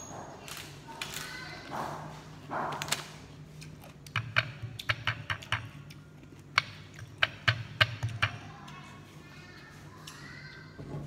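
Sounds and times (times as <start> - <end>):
irregular sharp clicks and taps: 4.0 - 8.4.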